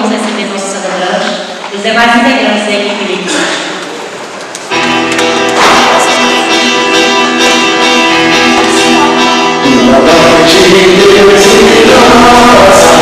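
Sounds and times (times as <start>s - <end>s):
church instrumental hymn chords: 4.5s - 13.0s.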